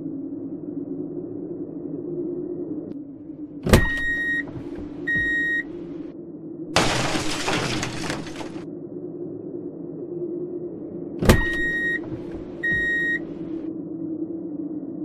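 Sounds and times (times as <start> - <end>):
steady low hum: 0.0 - 15.0
short electronic beeps: 3.9 - 4.5, 5.1 - 5.6, 11.4 - 12.0, 12.6 - 13.2
glass tabletop shattering: 6.8 - 8.6.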